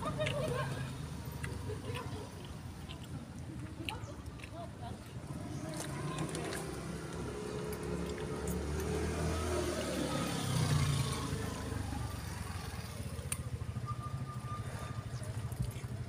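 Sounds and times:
vehicle engine passing: 5.2 - 16.0.

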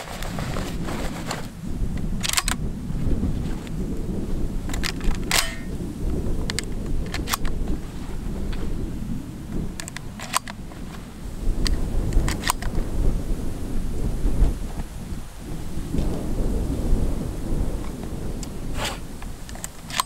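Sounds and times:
strong wind buffeting microphone: 0.0 - 20.0
sharp clicks and snaps: 2.0 - 2.6, 4.7 - 5.7, 6.5 - 7.6, 9.8 - 10.6, 11.6 - 12.8, 19.2 - 20.0.

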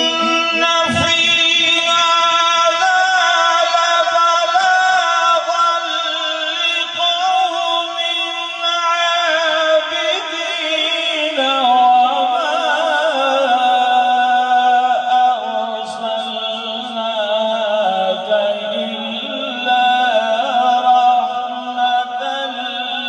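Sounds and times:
man chanting melodic recitation: 0.0 - 23.0.

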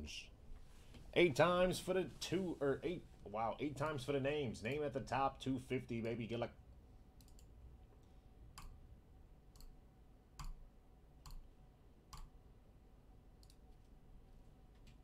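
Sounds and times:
computer mouse clicking: 7.2 - 8.8, 9.5 - 9.8, 10.4 - 10.6, 11.2 - 11.4, 12.1 - 12.3, 13.4 - 13.6.

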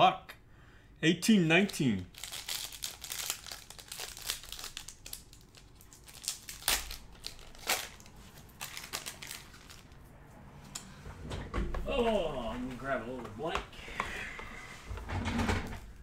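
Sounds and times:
foil wrapper crackling: 2.1 - 10.0
foil tearing: 2.2 - 9.9.

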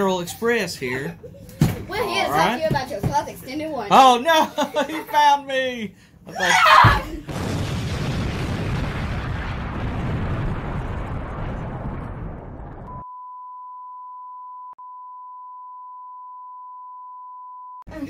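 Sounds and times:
explosion deep rumble: 7.3 - 13.0.

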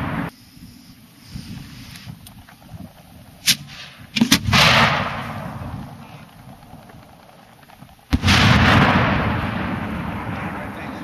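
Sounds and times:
firework bangs with rolling echo: 0.0 - 0.3, 3.4 - 11.0.

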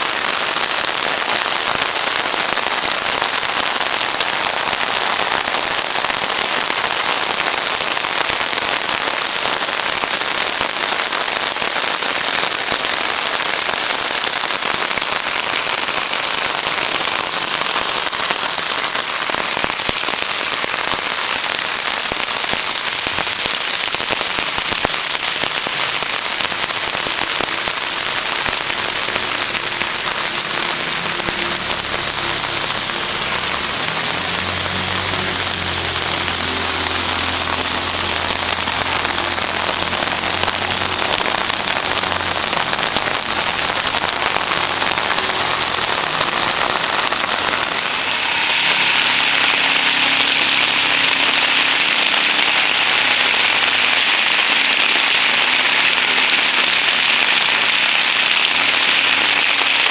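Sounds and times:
heavy rain pouring: 0.0 - 59.9
low engine hum: 30.4 - 47.7.

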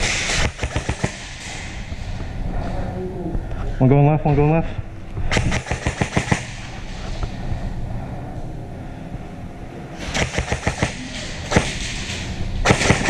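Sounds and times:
low background hum: 0.0 - 13.0
airsoft gunfire cracks: 5.3 - 6.6, 10.1 - 13.0.

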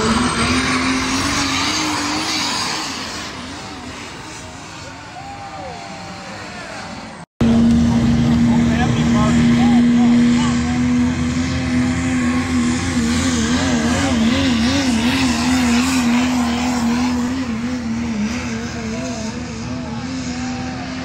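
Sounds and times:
diesel engine at high revs: 0.0 - 21.0.

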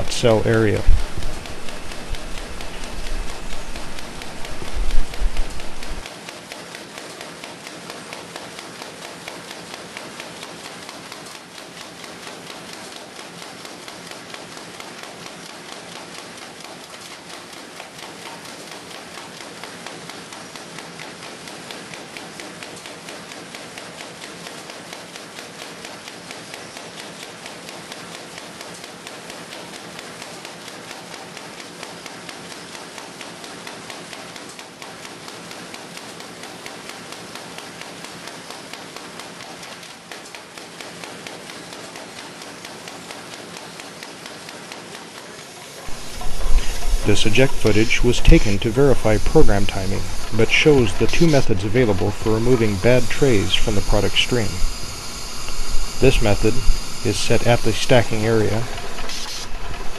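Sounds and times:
machine clattering with rapid clicks: 0.0 - 59.9.

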